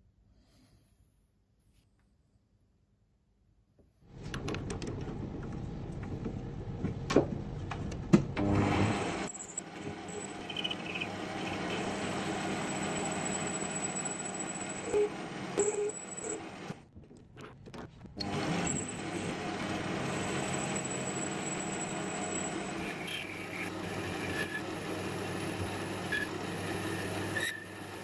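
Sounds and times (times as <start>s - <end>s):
metal lathe cutting with whine: 8.6s - 16.7s, 18.2s - 28.0s.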